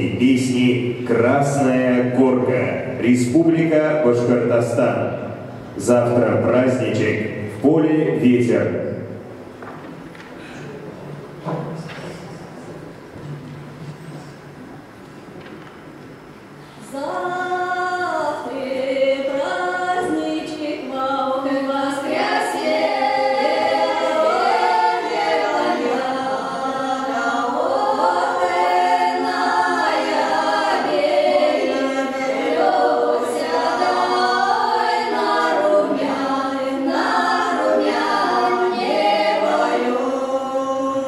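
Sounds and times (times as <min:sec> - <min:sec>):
women singing a cappella: 0:16.8 - 0:41.0.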